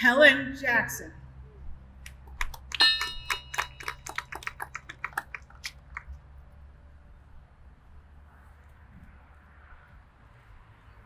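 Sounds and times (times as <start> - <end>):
small bell ringing: 2.7 - 4.2.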